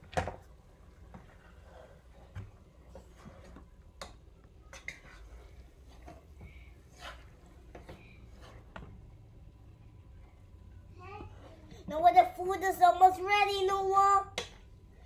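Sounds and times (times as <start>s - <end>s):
low steady hum: 0.0s - 15.0s
wooden spoon scraping metal pot: 4.6s - 9.1s.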